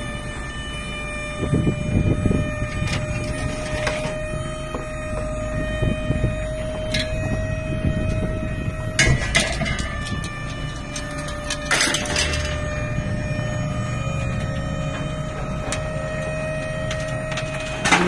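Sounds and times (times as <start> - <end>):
truck engine running: 0.0 - 18.0
scrap metal clanking and rattling: 2.7 - 4.3, 8.9 - 12.9, 16.7 - 18.0.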